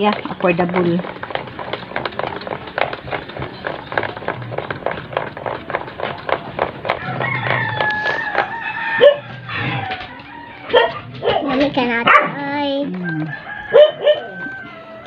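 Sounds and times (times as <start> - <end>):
rooster crowing: 6.9 - 11.4, 12.9 - 15.0.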